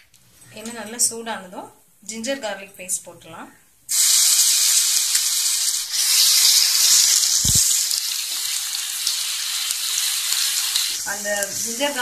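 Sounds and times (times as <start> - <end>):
paste sizzling in oil: 3.9 - 12.0.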